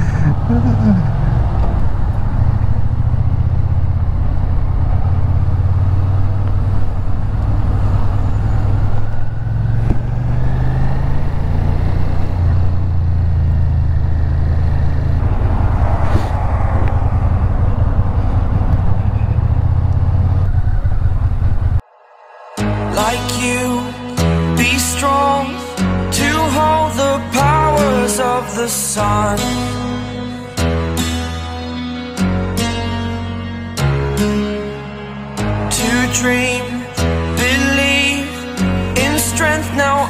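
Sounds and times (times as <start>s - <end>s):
motorcycle engine running: 0.0s - 16.0s, 16.8s - 21.8s.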